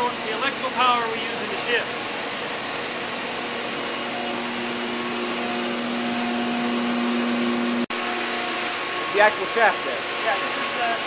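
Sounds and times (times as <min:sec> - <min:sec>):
engine room machinery roar: 0:00.0 - 0:11.0
humming tones: 0:03.3 - 0:11.0.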